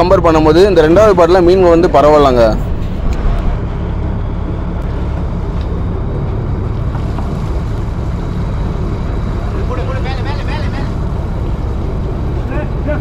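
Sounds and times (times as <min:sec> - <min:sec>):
boat engine droning: 0:00.0 - 0:13.0
sea noise: 0:00.0 - 0:13.0
wind: 0:00.0 - 0:13.0.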